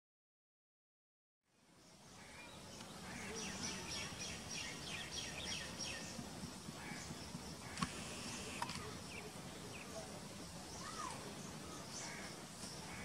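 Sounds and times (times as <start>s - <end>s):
small birds chirping: 1.5s - 13.0s
sharp clicks: 7.8s - 8.9s.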